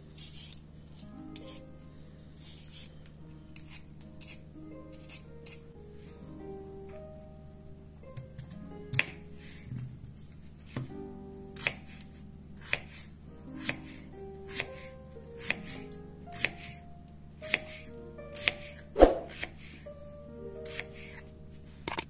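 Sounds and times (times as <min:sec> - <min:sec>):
knife slicing potato: 0:00.0 - 0:00.6, 0:02.4 - 0:03.0, 0:03.6 - 0:04.4, 0:05.0 - 0:05.7, 0:11.6 - 0:16.8, 0:17.4 - 0:19.8, 0:20.6 - 0:21.3.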